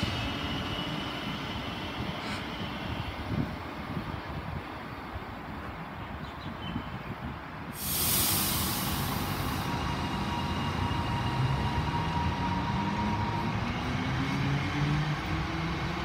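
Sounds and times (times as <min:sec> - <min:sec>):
loud hiss of air: 0:07.7 - 0:11.7.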